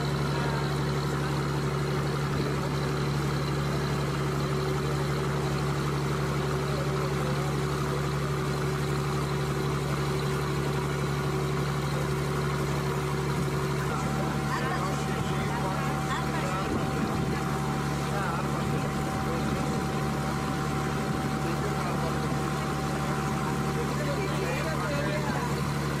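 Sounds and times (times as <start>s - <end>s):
boat engine humming: 0.0s - 26.0s
steady tones: 12.4s - 26.0s.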